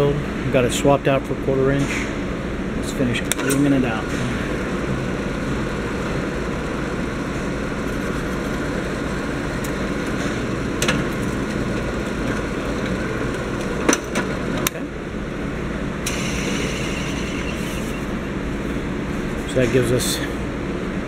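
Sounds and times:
drill press motor running: 3.8s - 14.6s.

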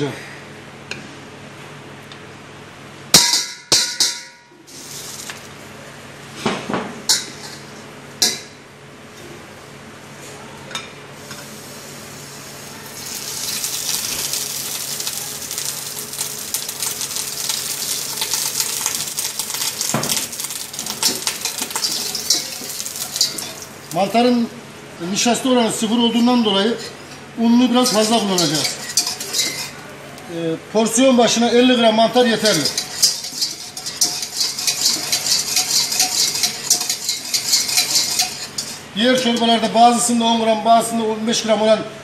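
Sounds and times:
butter sizzling in metal bowl: 4.7s - 5.5s, 11.3s - 24.5s, 26.0s - 30.3s, 31.3s - 39.6s
bowls and utensils clattering: 13.0s - 24.0s, 26.7s - 29.9s, 32.3s - 39.6s
whisk clinking against metal: 13.0s - 24.0s, 27.6s - 29.8s, 32.3s - 39.5s.

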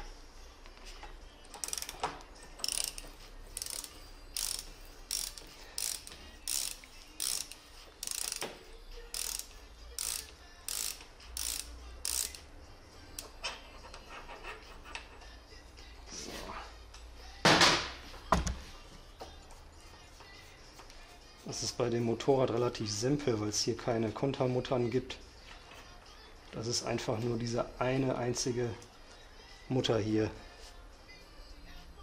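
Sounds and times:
ratchet wrench clicking: 1.5s - 12.5s, 13.1s - 13.4s.

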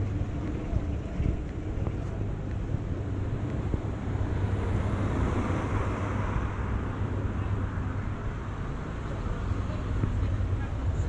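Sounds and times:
street traffic: 0.0s - 11.0s
wind rumble on microphone: 0.0s - 11.0s
vehicle passing: 3.1s - 11.0s.

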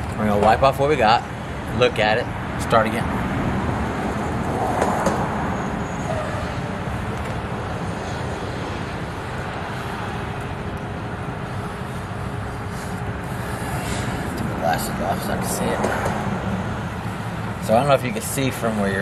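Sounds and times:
low outdoor rumble: 5.2s - 19.0s.

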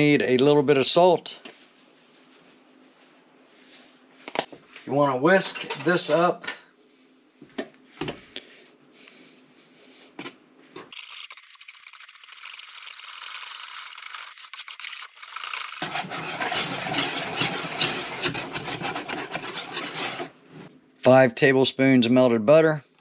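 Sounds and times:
whisk beating batter in bowl: 11.0s - 20.6s.

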